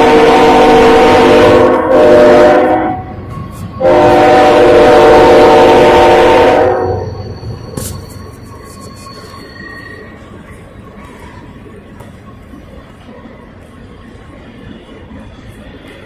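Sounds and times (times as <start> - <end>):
locomotive air horn chord: 0.0 - 7.1
passing train rumble: 0.0 - 16.0.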